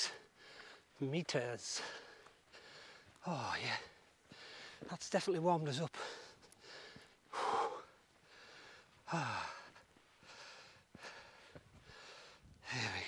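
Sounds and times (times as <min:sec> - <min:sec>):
man breathing hard: 0:00.0 - 0:01.0, 0:01.7 - 0:04.9, 0:06.0 - 0:13.0
man sighing: 0:09.0 - 0:09.7.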